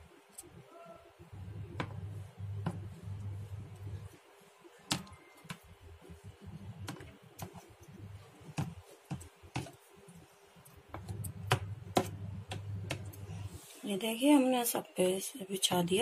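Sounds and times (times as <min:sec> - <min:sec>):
low hum: 0:01.3 - 0:04.2.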